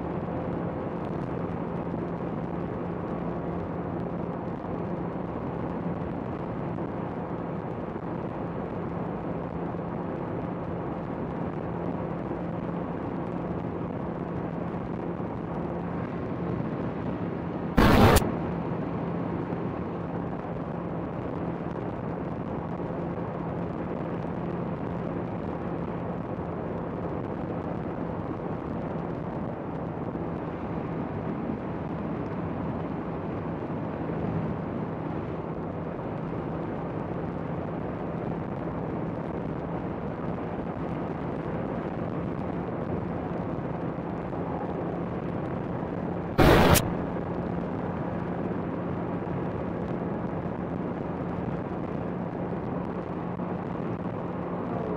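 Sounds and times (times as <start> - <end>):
short loud burst: 17.8 - 18.2, 46.4 - 47.2.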